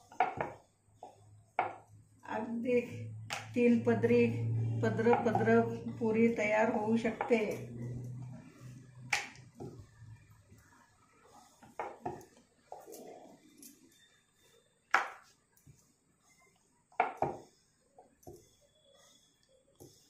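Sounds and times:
rolling pin knocking on board: 0.1s - 0.6s, 1.6s - 1.8s, 17.0s - 17.5s.

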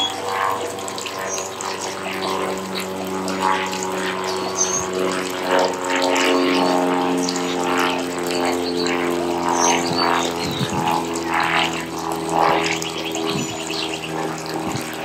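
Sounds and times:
steady low droning hum: 0.0s - 15.0s
small birds chirping: 0.9s - 3.0s, 4.0s - 5.2s, 6.4s - 11.0s, 11.9s - 15.0s.

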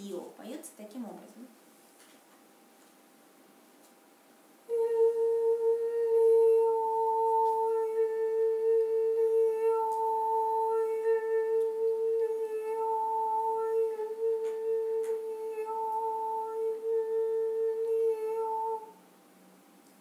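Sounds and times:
woman singing a long note: 4.7s - 19.0s.

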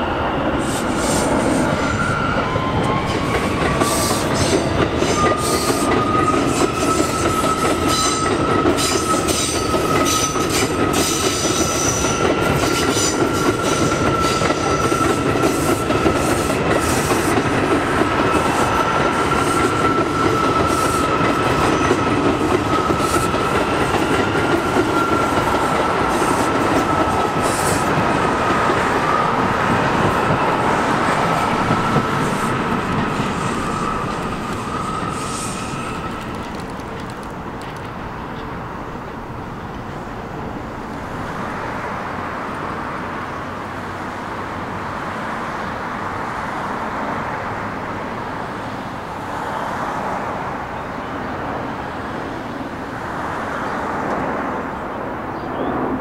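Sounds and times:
wheels rumbling on rail: 0.0s - 56.0s
train wheels squealing: 0.5s - 28.0s, 30.1s - 36.8s.

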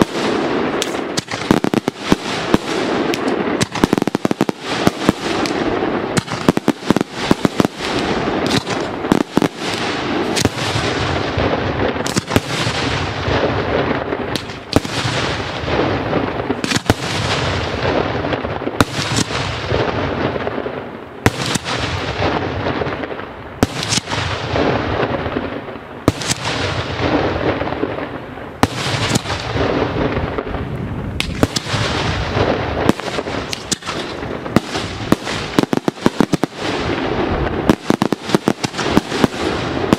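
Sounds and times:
fireworks bangs with rolling echo: 0.0s - 39.9s
fireworks cracks: 0.0s - 39.9s.

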